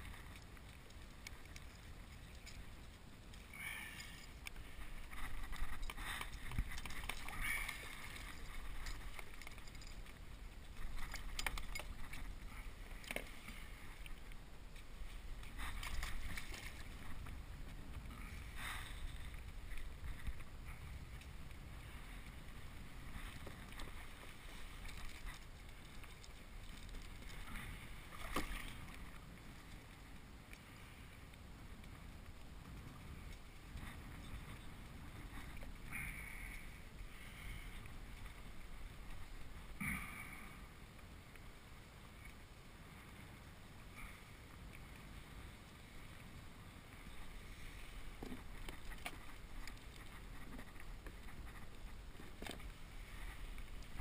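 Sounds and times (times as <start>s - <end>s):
water splashes: 0.0s - 30.8s
water lapping against kayak hull: 0.0s - 54.0s.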